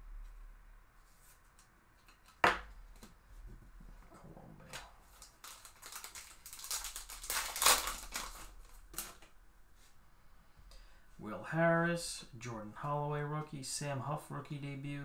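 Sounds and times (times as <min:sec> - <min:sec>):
foil wrapper crinkling: 0:05.1 - 0:09.3.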